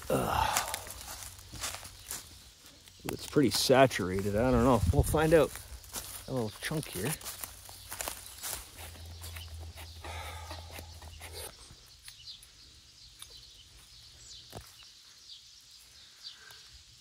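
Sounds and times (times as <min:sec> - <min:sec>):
birch bark shaved and crumpled: 0:00.0 - 0:12.2.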